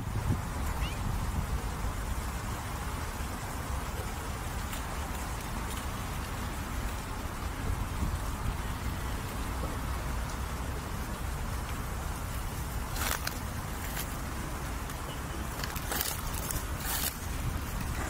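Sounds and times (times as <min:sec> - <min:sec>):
dry leaves crackling underfoot: 0:12.0 - 0:18.0.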